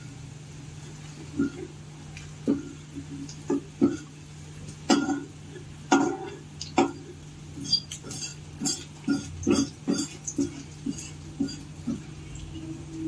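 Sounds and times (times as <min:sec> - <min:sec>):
spatula scraping metal frying pan: 0:05.9 - 0:13.0.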